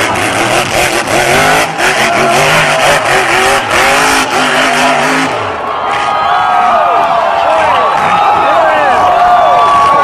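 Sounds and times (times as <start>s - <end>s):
buggy engine revving hard: 0.0s - 6.7s.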